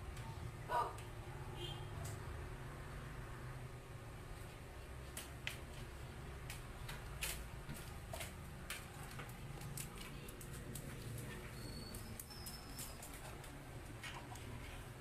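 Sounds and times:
puppy claws tapping on tile: 6.4 - 14.7.

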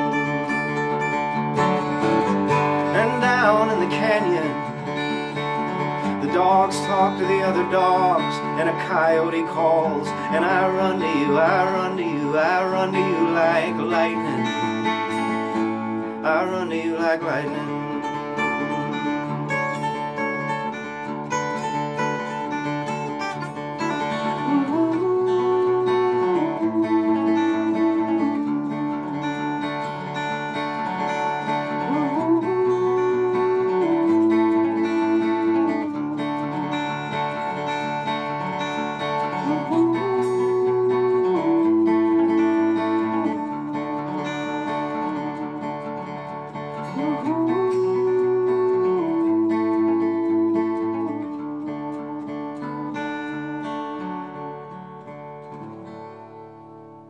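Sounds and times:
acoustic guitar playing: 0.0 - 57.0.

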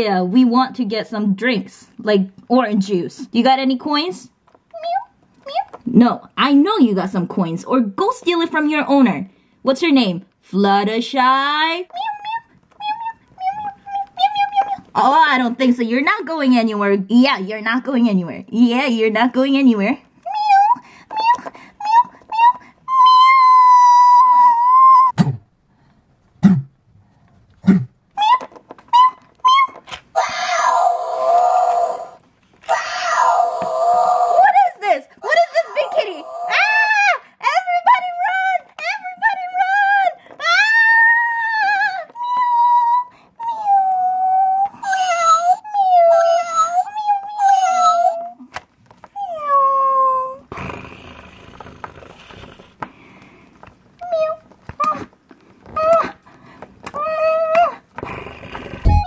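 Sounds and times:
long high cry: 20.4 - 25.2, 29.0 - 34.6
person meowing: 58.8 - 59.0.

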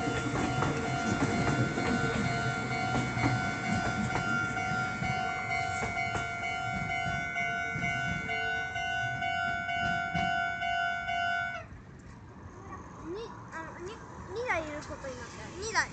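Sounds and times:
train wheels clacking on rails: 0.0 - 11.3
level-crossing alarm ringing: 0.0 - 11.6.

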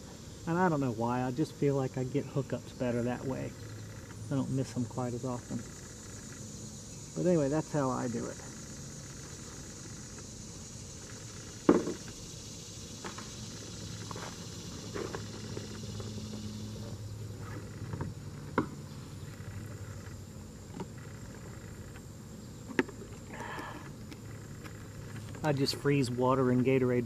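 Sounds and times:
high insect buzz: 0.0 - 27.0.

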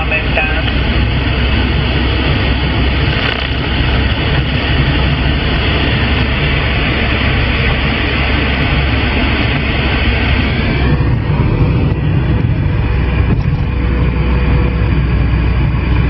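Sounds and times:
radio static hiss: 0.0 - 0.9, 2.9 - 4.4.

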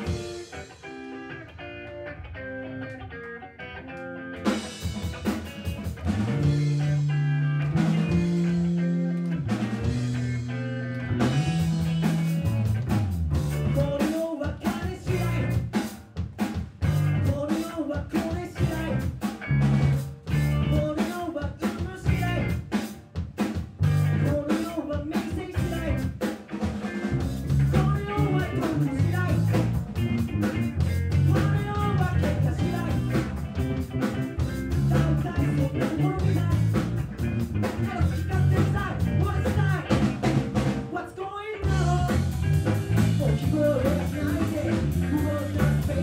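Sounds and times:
drum kit: 0.0 - 3.0, 4.4 - 46.0
live rock band playing: 0.0 - 46.0
man singing: 13.6 - 15.8, 17.1 - 19.2, 20.4 - 22.8, 24.1 - 26.1, 27.6 - 40.1, 40.9 - 46.0.

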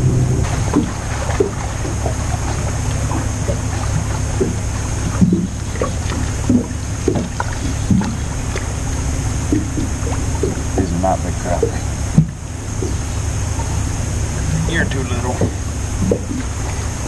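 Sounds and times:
faint high whine: 0.0 - 17.0
low rumble of wind and water: 0.0 - 17.0.

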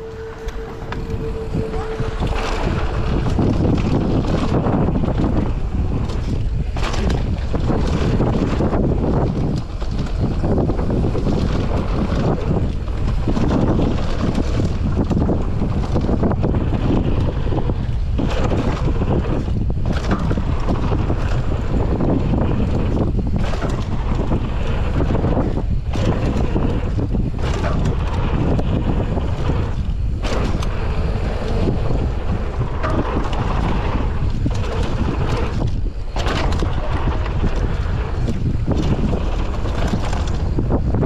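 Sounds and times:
tyres rumbling on dirt: 0.0 - 41.0
wind buffeting microphone: 0.0 - 41.0.

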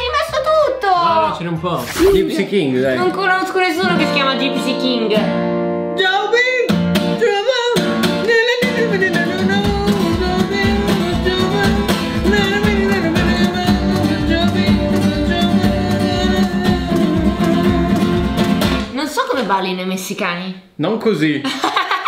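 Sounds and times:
strummed acoustic guitar: 0.2 - 18.9
man singing: 7.2 - 18.6.

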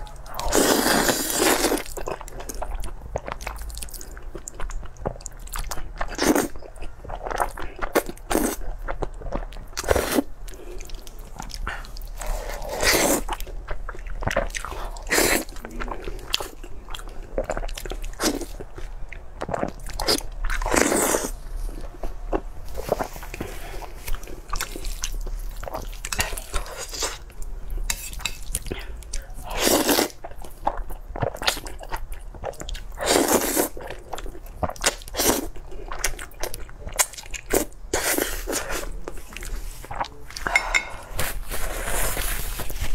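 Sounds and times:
wet chewing: 0.3 - 27.3.

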